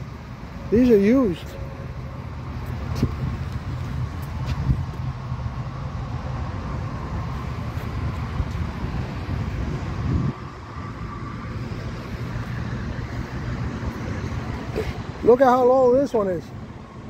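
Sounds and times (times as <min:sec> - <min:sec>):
outdoor background rumble: 0:00.0 - 0:17.0.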